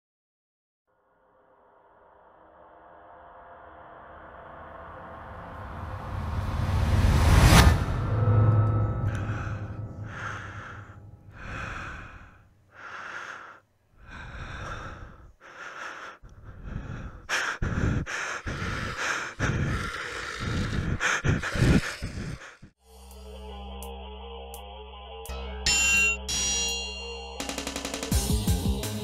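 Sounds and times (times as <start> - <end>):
low thumps: 6.0 - 12.2
heavy rhythmic breathing: 8.0 - 23.2.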